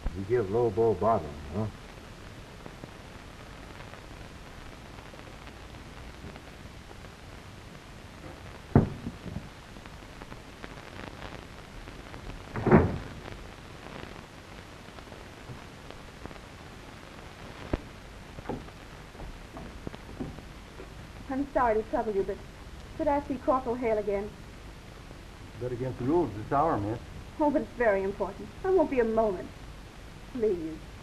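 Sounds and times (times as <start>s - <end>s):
film soundtrack hiss: 0.0s - 31.0s
thud: 8.2s - 9.5s, 12.5s - 13.4s
sharp knock: 8.8s - 9.4s.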